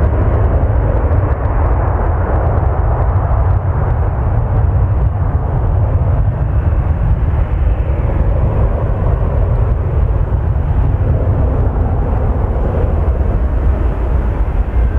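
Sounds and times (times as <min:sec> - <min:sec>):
jet engine rumble: 0:00.0 - 0:14.9.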